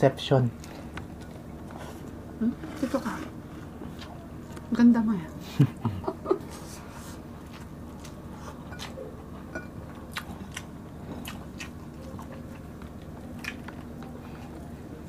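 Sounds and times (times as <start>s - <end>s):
faint steady hum: 0.0s - 15.0s
chewing: 7.4s - 14.9s.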